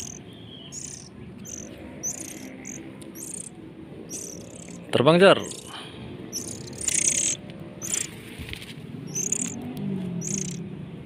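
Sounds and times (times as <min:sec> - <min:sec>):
high-pitched bird chirps: 0:00.0 - 0:03.5, 0:04.1 - 0:08.2, 0:09.1 - 0:09.6, 0:10.2 - 0:10.6.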